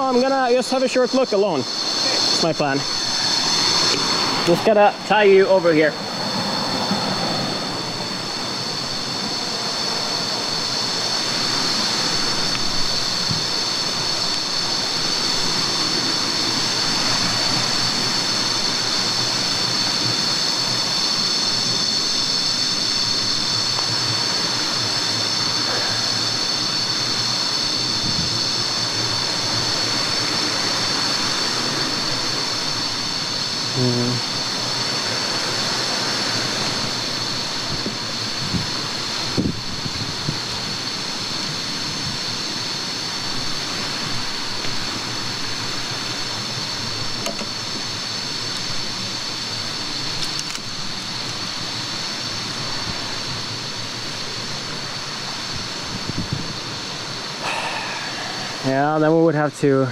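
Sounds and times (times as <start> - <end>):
high-pitched drone: 0.0 - 39.8, 57.4 - 59.9.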